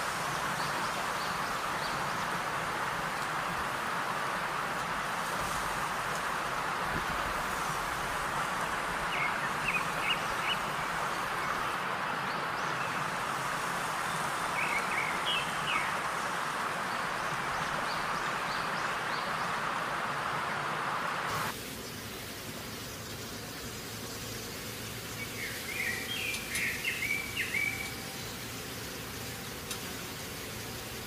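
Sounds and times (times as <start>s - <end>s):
steady rushing noise: 0.0s - 21.6s
bird chirps: 25.2s - 28.3s.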